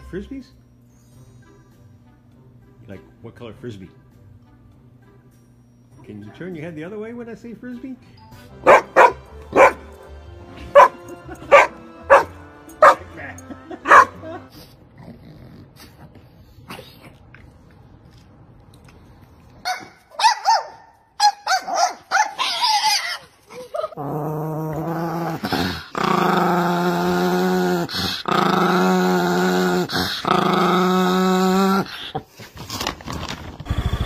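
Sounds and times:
small dog growling: 14.8s - 17.2s, 23.8s - 32.2s
dog high-pitched cries: 19.7s - 24.0s.

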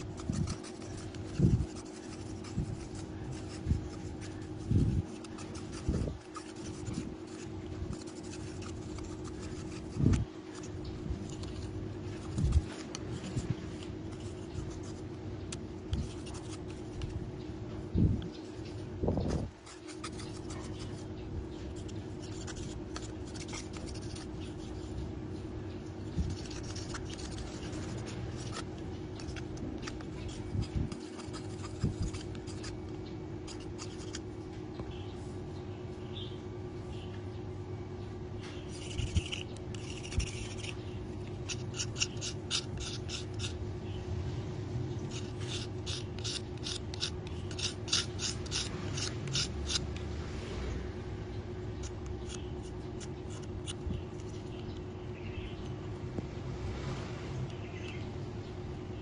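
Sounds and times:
knife scraping bamboo strip: 0.0s - 17.2s, 19.2s - 21.1s, 21.7s - 25.0s, 26.1s - 34.2s, 38.6s - 43.6s, 45.1s - 50.0s, 51.8s - 54.8s.

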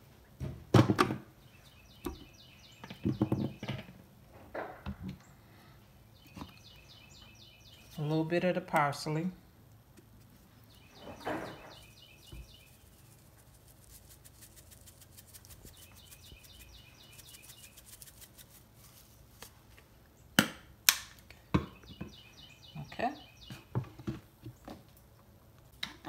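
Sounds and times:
bird chirping: 1.4s - 4.0s, 5.1s - 9.2s, 10.4s - 19.2s, 21.5s - 24.8s
flakes shaken from spice shaker: 11.7s - 19.6s.

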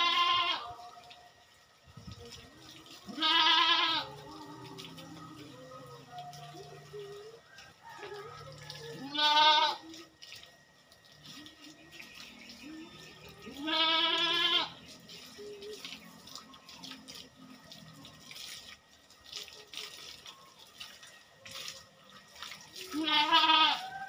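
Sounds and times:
goat bleating: 0.0s - 0.8s, 3.1s - 4.3s, 9.0s - 10.0s, 13.4s - 14.8s, 22.9s - 23.9s
water splashing from hose: 0.0s - 24.0s.

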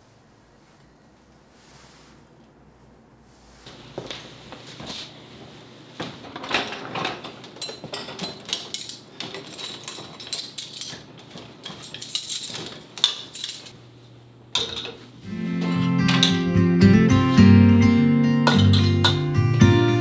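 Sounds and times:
dishes and cutlery clinking: 6.4s - 13.8s, 14.5s - 17.5s, 18.4s - 19.4s.

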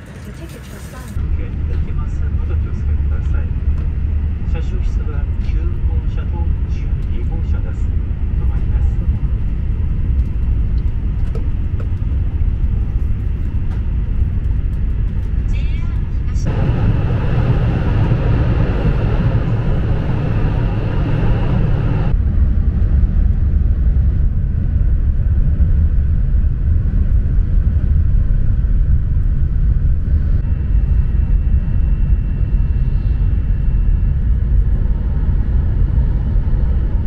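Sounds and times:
deep train cabin rumble: 0.0s - 37.0s
faint high whine: 16.4s - 22.2s.

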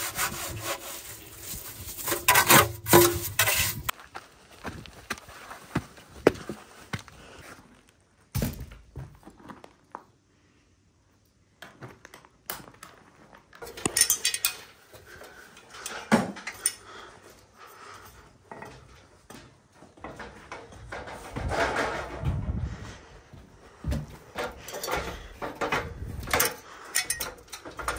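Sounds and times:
bucket knocking and rattling: 1.8s - 3.9s
footsteps: 18.6s - 26.5s.

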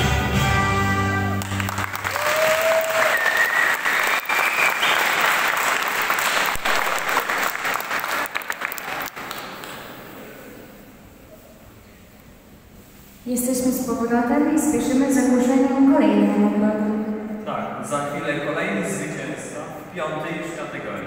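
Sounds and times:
audience applauding: 1.3s - 10.2s.

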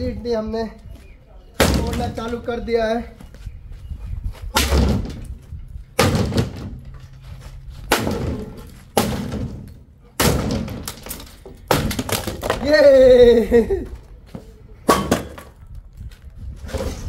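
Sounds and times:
sledgehammer striking sheet metal: 4.6s - 5.4s, 6.0s - 6.8s, 7.8s - 12.0s.

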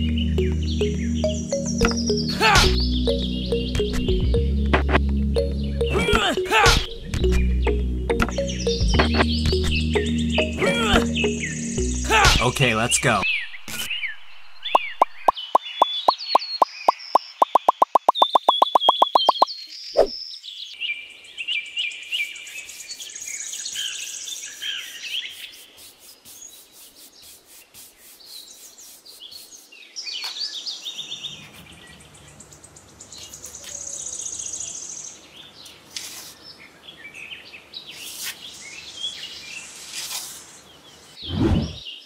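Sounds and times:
small birds chirping: 0.0s - 4.4s, 5.4s - 42.0s
sand scraping in basin: 24.3s - 29.8s, 35.9s - 36.4s, 37.9s - 38.6s, 39.6s - 40.6s.

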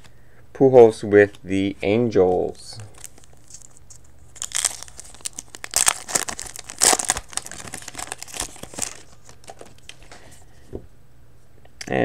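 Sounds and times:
foil wrapper crinkling and tearing: 2.9s - 10.0s.

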